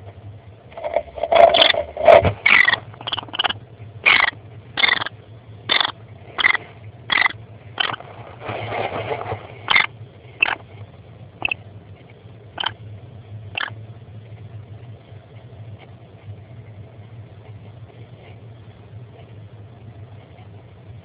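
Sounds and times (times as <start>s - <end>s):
low hum: 0.0s - 21.0s
bird rustling through wood chips: 0.8s - 3.2s, 7.8s - 9.9s.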